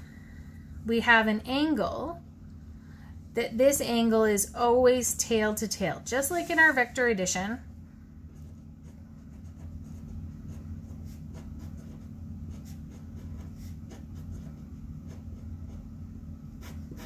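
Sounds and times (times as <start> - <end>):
steady low hum: 0.0 - 17.0
marker scratching on paper: 6.3 - 7.2, 8.3 - 17.0.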